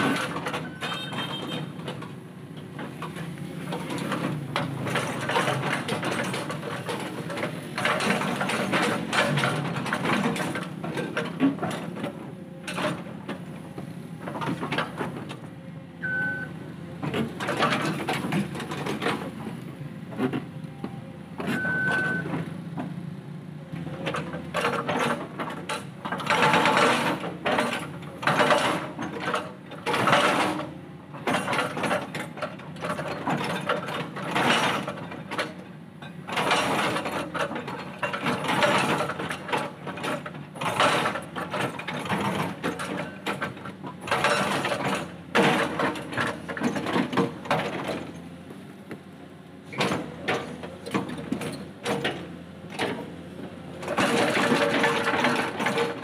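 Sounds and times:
hydraulic breaker hammering boulders: 0:24.0 - 0:49.0, 0:49.7 - 0:56.0.

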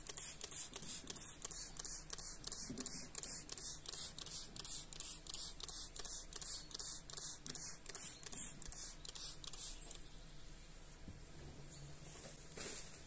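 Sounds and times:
spray bottle squirting hiss: 0:00.0 - 0:10.0.

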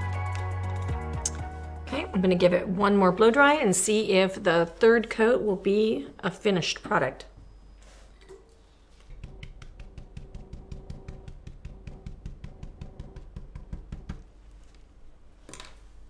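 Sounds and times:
stencil brush dabbing: 0:08.9 - 0:14.3.

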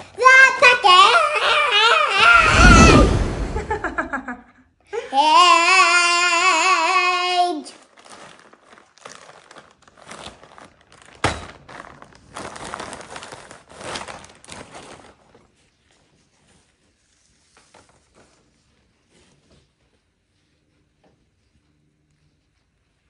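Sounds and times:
child singing wavering note: 0:05.2 - 0:07.7
plastic bag crinkling: 0:07.5 - 0:15.7.

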